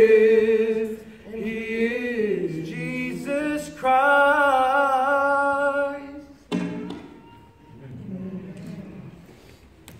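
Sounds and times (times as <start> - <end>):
vocal trio singing in harmony: 0.0 - 6.6.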